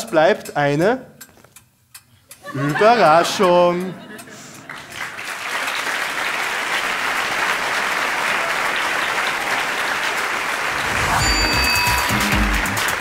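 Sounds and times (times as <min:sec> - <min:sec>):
audience applauding: 0:04.6 - 0:13.0
music with steady bass beat: 0:11.4 - 0:13.0.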